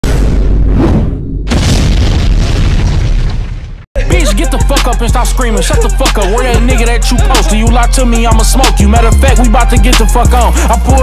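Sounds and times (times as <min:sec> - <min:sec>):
sudden hit: 0:00.0 - 0:03.8
intro music with heavy bass: 0:04.0 - 0:11.0.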